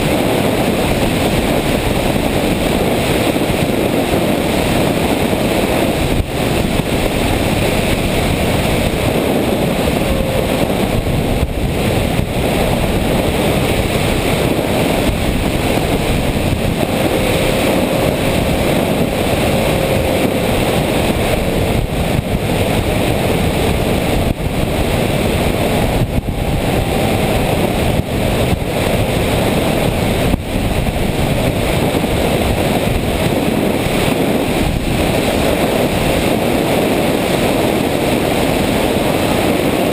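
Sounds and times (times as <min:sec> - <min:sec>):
motor and propeller drone: 0:00.0 - 0:39.9
wind rush over microphone: 0:00.0 - 0:39.9
faint drifting tone: 0:05.6 - 0:32.7.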